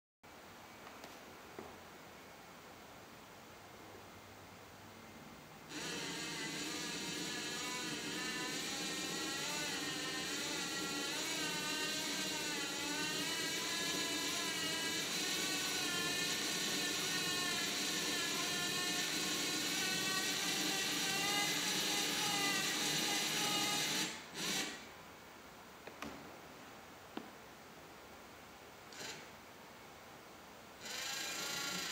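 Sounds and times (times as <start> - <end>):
motor whirring with gear noise: 5.7 - 24.8.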